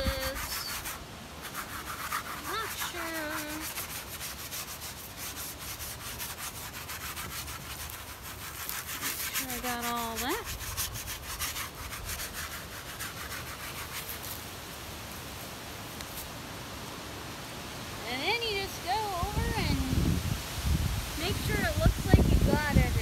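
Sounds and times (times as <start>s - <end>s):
brush scratching on painting: 0.0s - 14.6s, 21.2s - 23.0s.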